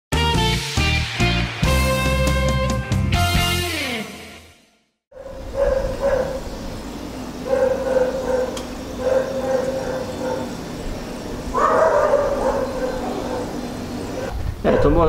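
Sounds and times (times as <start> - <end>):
dog barking: 5.1 - 6.5, 7.4 - 10.6, 11.5 - 15.0.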